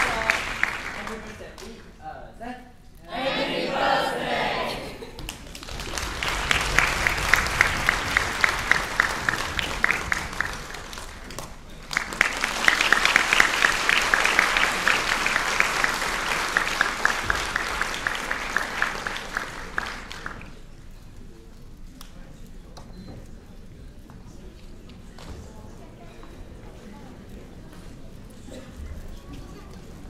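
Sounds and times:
audience applauding: 0.0 - 1.7, 5.2 - 20.7.

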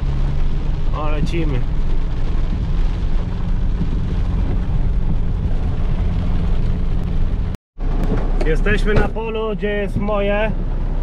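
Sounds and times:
rain and wet road hiss: 0.0 - 11.0
vehicle engine rumble: 0.0 - 11.0.

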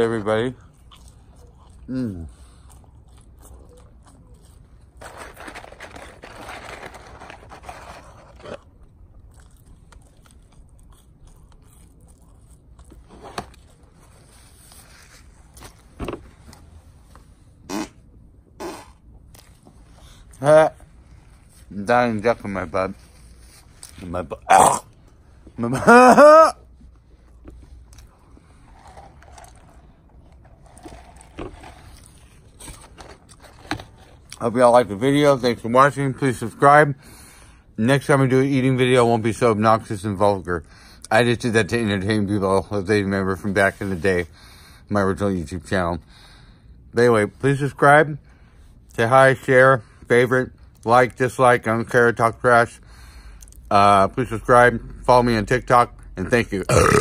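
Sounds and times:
man chewing fries: 0.4 - 15.9, 26.7 - 34.4
person chewing: 0.6 - 5.0, 8.3 - 14.2.

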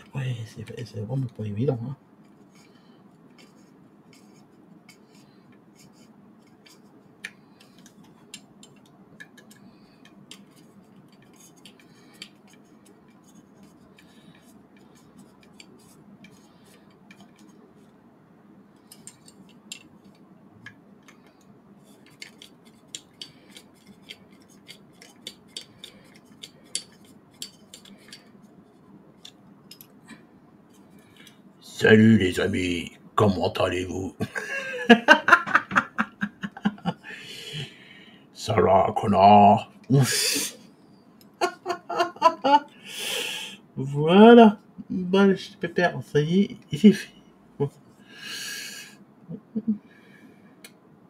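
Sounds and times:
faint steady hum: 0.0 - 51.0
screwdriver clicking on metal parts: 18.9 - 20.2, 22.0 - 28.3, 29.2 - 29.9.

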